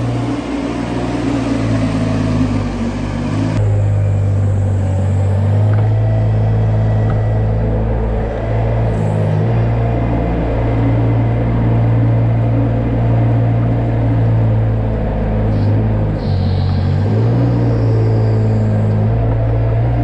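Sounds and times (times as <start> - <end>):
loader engine running under load: 0.0 - 20.0.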